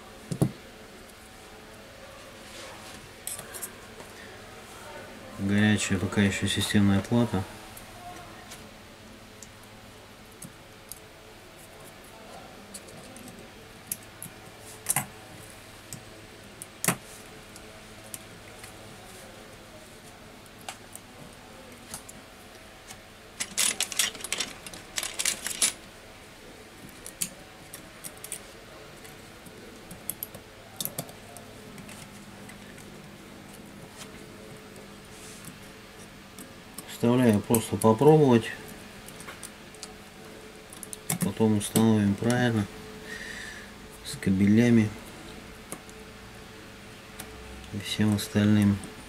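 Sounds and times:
faint steady hum: 0.0s - 49.0s
small metal parts clicking: 23.4s - 25.8s.

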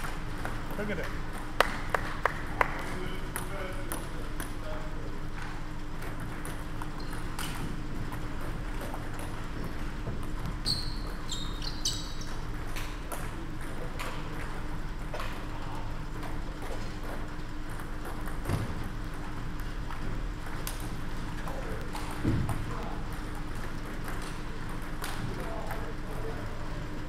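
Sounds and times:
shoe squeaks on floor: 10.6s - 12.4s.

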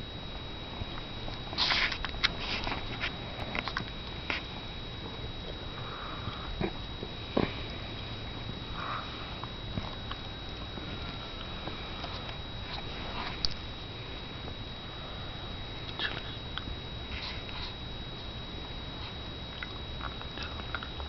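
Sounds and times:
faint high whine: 0.0s - 21.0s
small dogs snuffling and sniffing: 1.3s - 4.6s, 8.7s - 13.7s, 15.8s - 17.8s.

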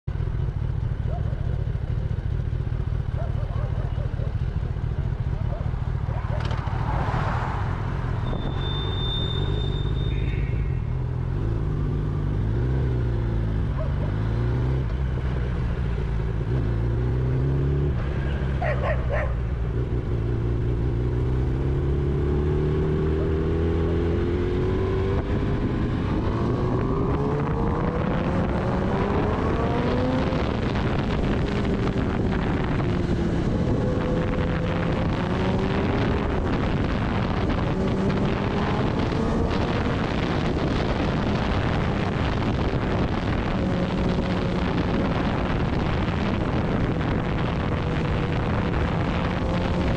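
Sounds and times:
motorcycle engine accelerating: 0.1s - 49.9s
wind noise on microphone: 7.8s - 11.9s, 16.3s - 49.9s.

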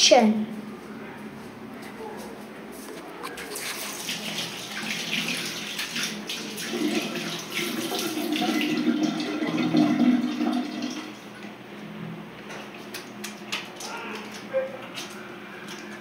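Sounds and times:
tap water running over hands: 3.4s - 11.0s.

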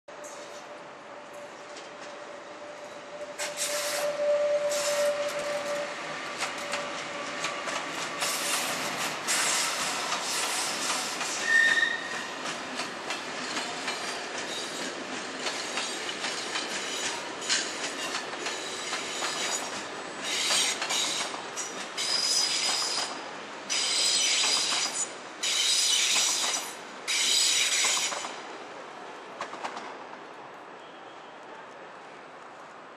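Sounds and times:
high-pitched wheel squeal: 3.4s - 7.0s, 11.4s - 12.3s
train wheels clattering over rails: 4.8s - 28.5s.

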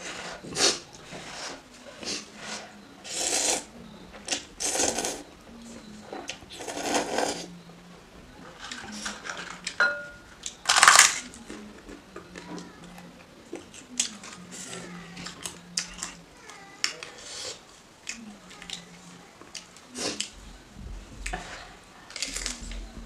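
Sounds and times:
slurping noodles: 0.0s - 3.7s, 6.6s - 7.5s.

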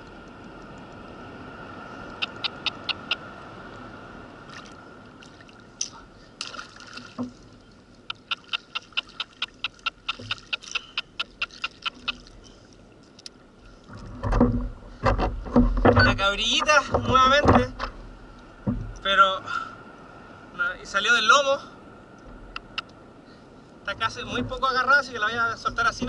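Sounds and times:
water lapping and splashing: 0.0s - 20.5s.

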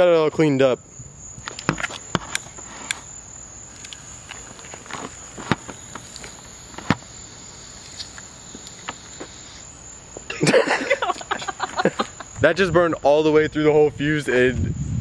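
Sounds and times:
high insect drone: 0.0s - 15.0s
fuse crackling: 0.4s - 13.3s
loud crack: 1.5s - 7.1s.

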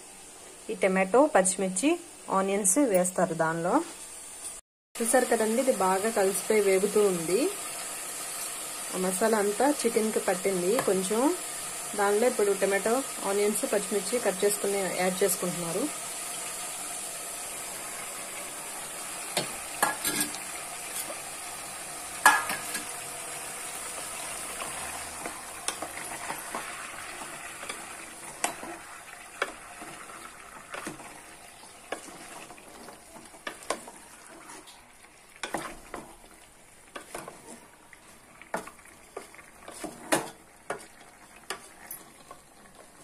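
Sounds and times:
chicken sizzling in a pot: 0.0s - 43.0s
spatula scraping a pot: 19.4s - 21.2s, 31.9s - 34.8s, 36.9s - 42.9s.

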